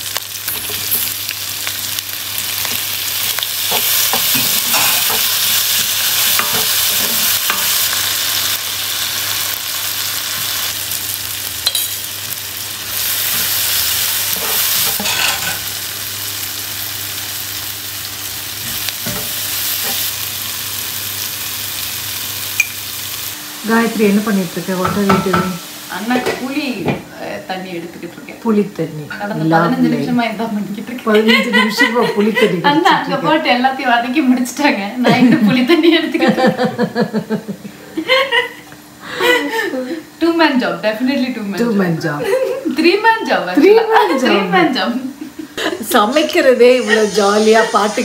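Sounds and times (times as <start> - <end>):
vegetables sizzling in oil: 0.0 - 37.4, 38.0 - 48.0.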